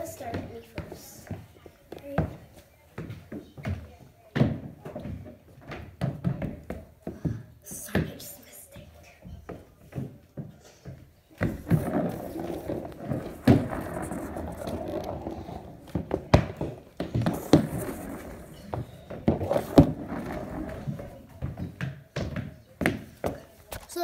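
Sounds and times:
wheels rolling on hardwood floor: 0:00.0 - 0:08.1, 0:09.3 - 0:23.6
shoes knocking on floorboards: 0:09.2 - 0:23.8.

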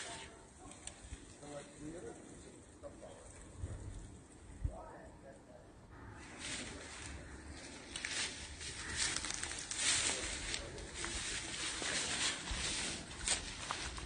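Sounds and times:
wind rumbling on microphone: 0:03.2 - 0:05.0
footsteps crunching through grass: 0:06.2 - 0:14.0.

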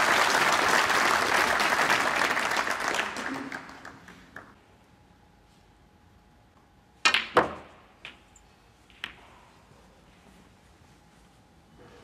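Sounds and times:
audience applause: 0:00.0 - 0:04.6.

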